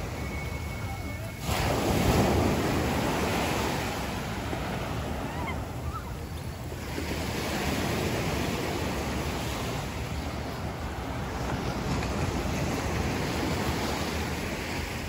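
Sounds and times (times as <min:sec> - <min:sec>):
surf breaking on beach: 0:00.0 - 0:15.0
wind buffeting microphone: 0:00.0 - 0:15.0.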